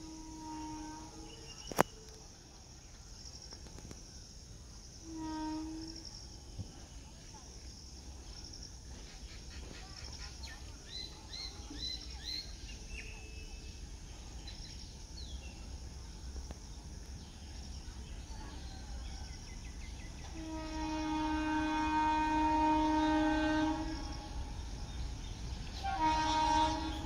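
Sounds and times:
locomotive horn blast: 0.0s - 1.5s, 5.0s - 6.0s, 20.3s - 24.7s, 25.7s - 27.0s.

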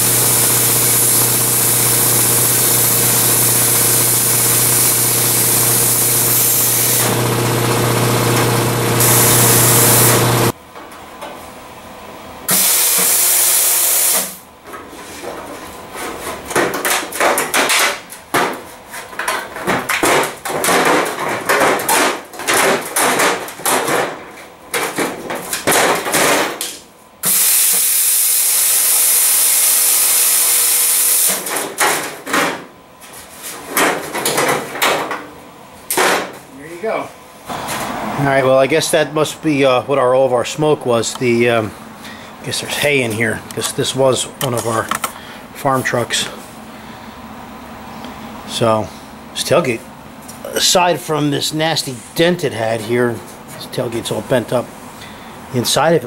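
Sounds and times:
plasma cutter hissing: 0.0s - 10.5s, 12.5s - 14.4s, 27.2s - 31.4s.

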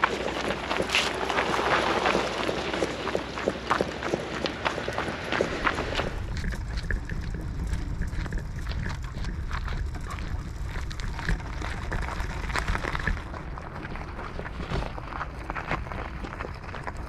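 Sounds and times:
electric vehicle rumbling: 0.0s - 17.0s
small crunches and ticks: 0.0s - 17.0s
wind on microphone: 4.3s - 17.0s.

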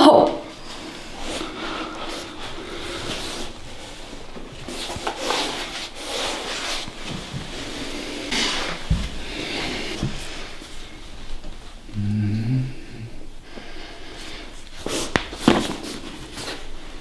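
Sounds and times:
hands rubbing skin and cloth: 0.6s - 11.7s.

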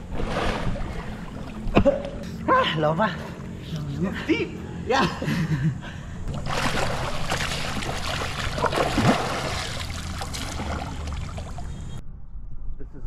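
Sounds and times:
river water sloshing and rushing: 0.0s - 1.8s, 6.3s - 12.0s
small water splashes: 6.3s - 12.0s.

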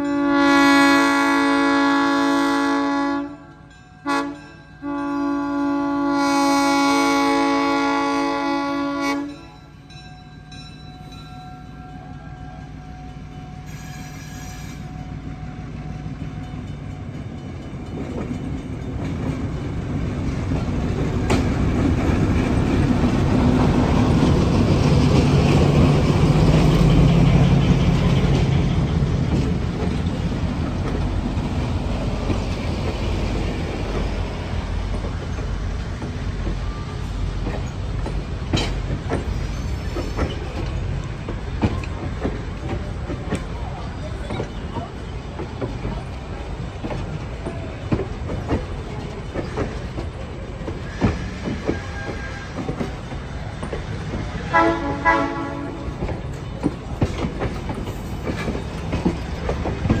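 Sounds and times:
train wheels rolling on rails: 5.6s - 60.0s
diesel locomotive engine running: 11.6s - 60.0s.

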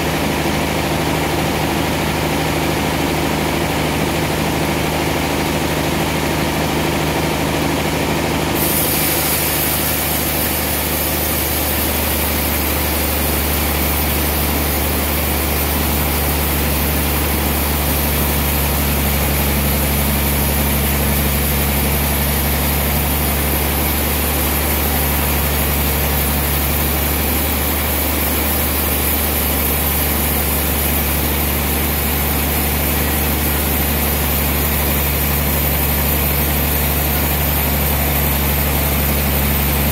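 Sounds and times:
band sawmill humming: 8.6s - 39.9s.

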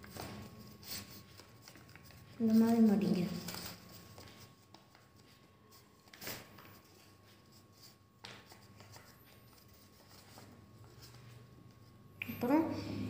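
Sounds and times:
paper being folded and creased: 0.0s - 11.9s.

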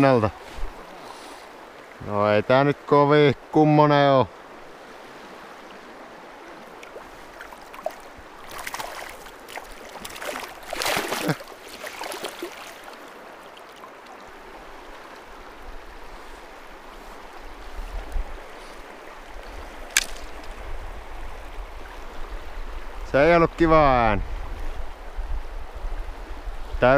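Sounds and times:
river flowing: 0.0s - 23.1s
water splashing and handling: 6.4s - 15.3s, 17.9s - 20.6s.

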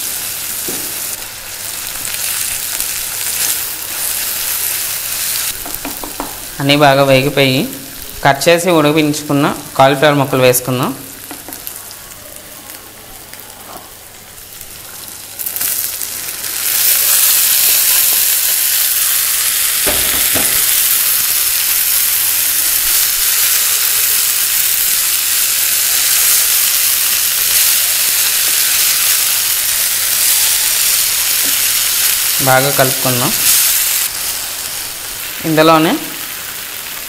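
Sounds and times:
vegetables sizzling in oil: 0.0s - 37.0s
spatula knocking pot: 5.6s - 6.4s.

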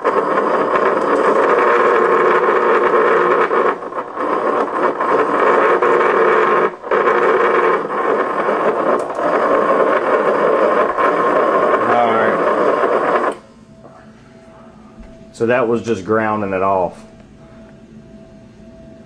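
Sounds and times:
transformer buzzing and arcing: 0.0s - 13.4s.

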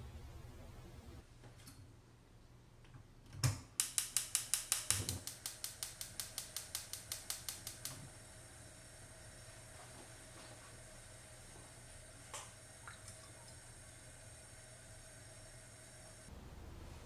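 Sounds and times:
spark igniter clicking: 3.8s - 8.1s
gas burner hissing: 3.8s - 12.8s, 13.4s - 16.3s.

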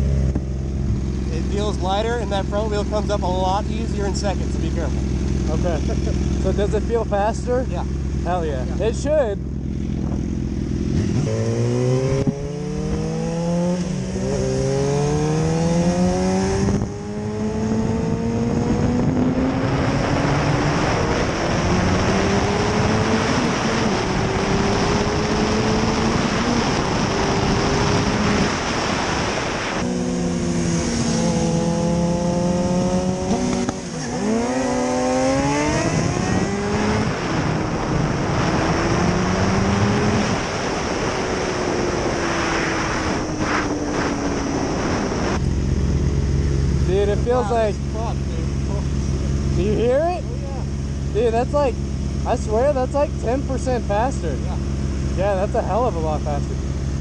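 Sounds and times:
motorcycle engine accelerating: 0.0s - 57.0s
wind noise on microphone: 9.9s - 46.8s.

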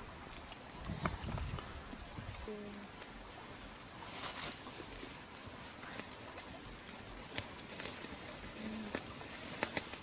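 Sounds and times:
fire crackles and pops: 5.8s - 10.0s.

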